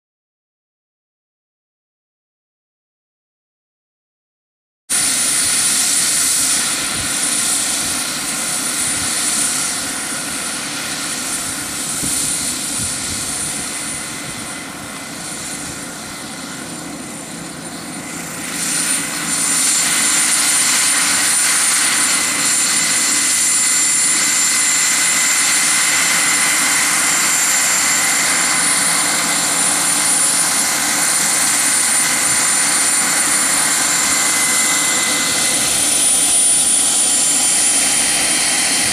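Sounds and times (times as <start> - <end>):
helicopter rotor noise: 4.9 - 38.9
model helicopter turbine whine: 4.9 - 38.9.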